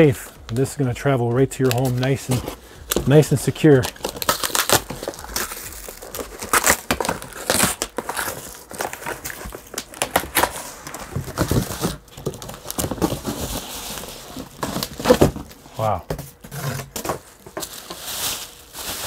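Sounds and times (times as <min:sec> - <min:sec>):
cardboard and plastic wrap rustling: 0:00.0 - 0:19.0.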